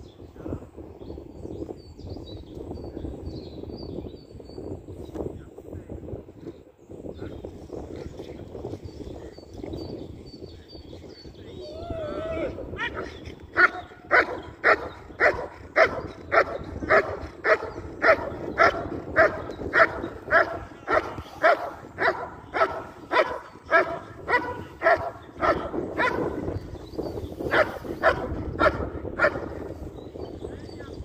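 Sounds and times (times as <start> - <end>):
dog barking: 13.6 - 26.4, 27.5 - 29.4.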